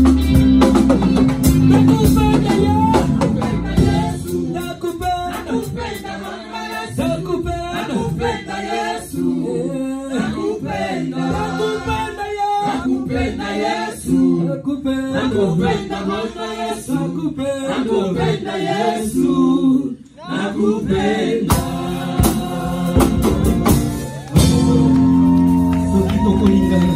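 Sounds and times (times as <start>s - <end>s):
band backing music: 0.0s - 9.1s, 20.8s - 26.9s
group singing gospel in harmony: 1.4s - 25.9s.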